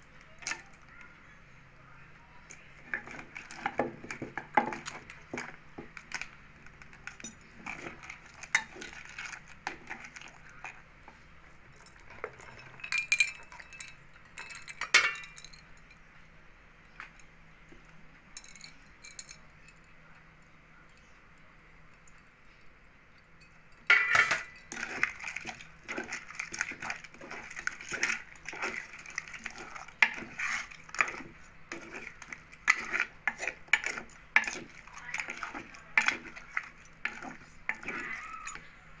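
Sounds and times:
metal spoon clinking in bowl: 0:11.8 - 0:16.0, 0:23.4 - 0:38.6
crab shells cracking: 0:24.7 - 0:38.6.

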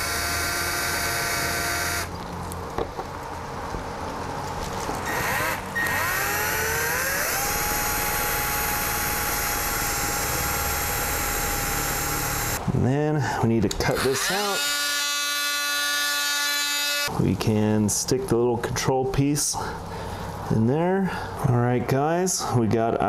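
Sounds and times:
cordless drill whining: 0:00.0 - 0:02.1, 0:05.0 - 0:12.6, 0:13.9 - 0:17.1.

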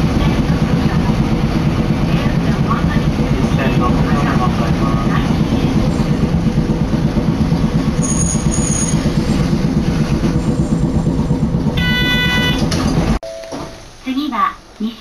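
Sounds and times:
streetcar wheels rumbling on rails: 0:00.0 - 0:15.0
short ringing tone: 0:08.0 - 0:09.0, 0:11.8 - 0:12.6, 0:13.2 - 0:13.8
high squeal: 0:08.0 - 0:09.4.

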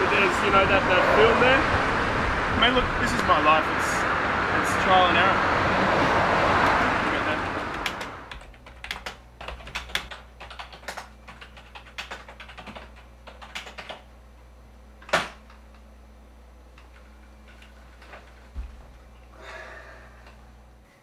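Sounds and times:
computer keyboard typing: 0:07.4 - 0:14.0.

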